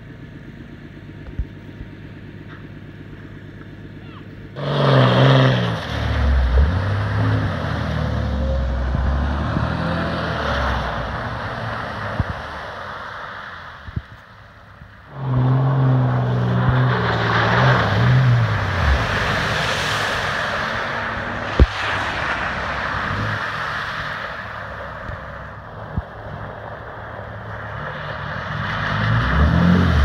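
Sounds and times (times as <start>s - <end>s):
truck engines revving: 0.0s - 30.0s
water spray and splashing: 17.0s - 25.0s.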